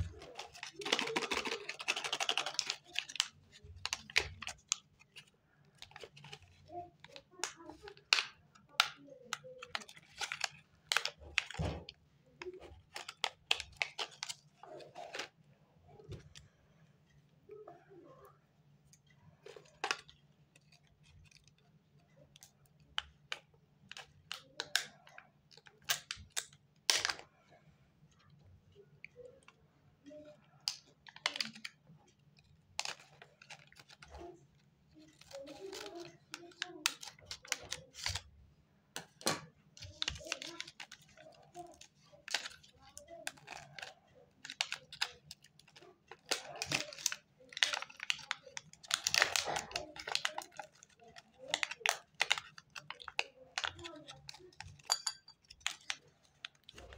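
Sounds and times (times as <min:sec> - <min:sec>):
plastic wrappers crinkling: 0:00.0 - 0:15.4, 0:30.2 - 0:38.4, 0:39.0 - 0:56.9.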